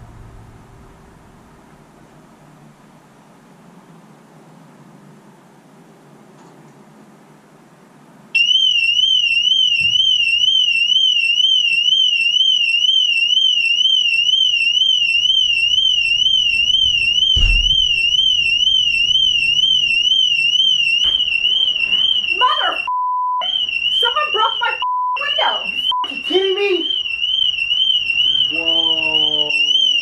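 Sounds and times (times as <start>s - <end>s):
car alarm warbling siren: 8.4s - 30.0s
thump: 15.4s - 20.1s.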